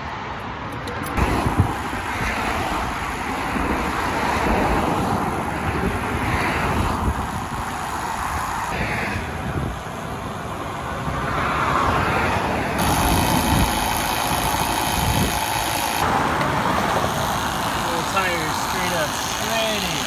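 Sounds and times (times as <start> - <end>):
road noise: 0.0 - 20.0
vehicle engine running: 12.8 - 20.0.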